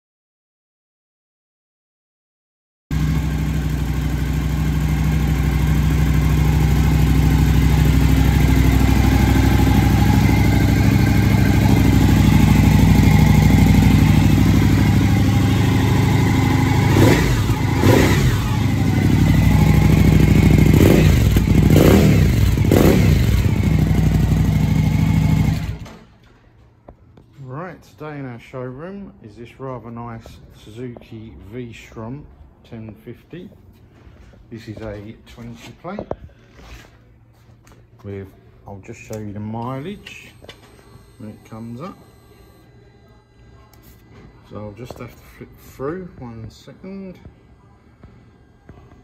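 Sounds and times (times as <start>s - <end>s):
motorcycle engine idling and revving: 2.9s - 26.1s, 39.1s - 42.6s.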